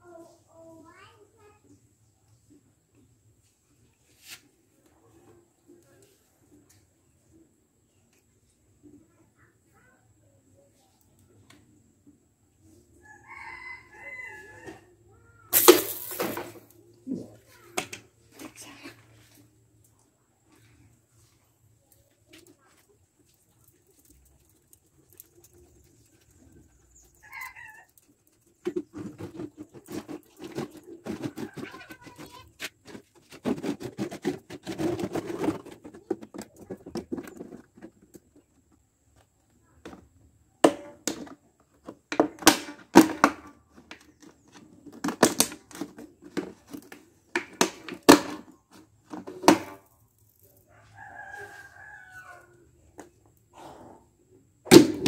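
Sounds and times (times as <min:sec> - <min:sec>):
plastic bottle crackling: 0:15.6 - 0:16.7.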